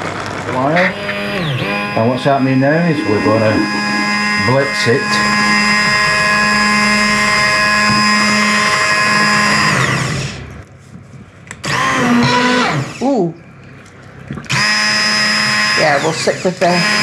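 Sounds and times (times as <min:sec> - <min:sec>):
stick blender motor whine: 0:00.0 - 0:10.6, 0:11.6 - 0:13.3, 0:14.4 - 0:17.0.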